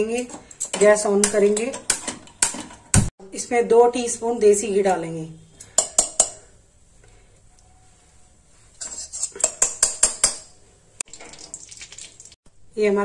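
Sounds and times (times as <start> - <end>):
spoon tapping on a pan: 5.7 - 6.4, 9.4 - 10.5.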